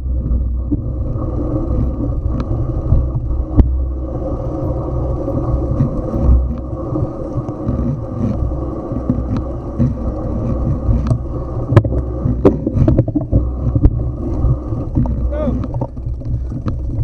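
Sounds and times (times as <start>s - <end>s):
muffled camera handling rumble: 4.6s - 17.0s
sharp knocks and clicks: 9.0s - 14.0s, 14.9s - 17.0s.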